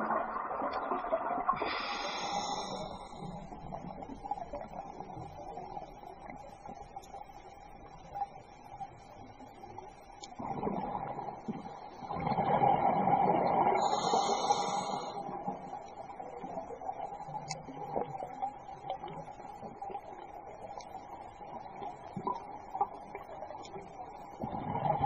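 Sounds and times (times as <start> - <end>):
hissing regulator inhale: 1.6 - 3.4, 13.8 - 15.3
exhaled bubbles gurgling: 10.3 - 25.0.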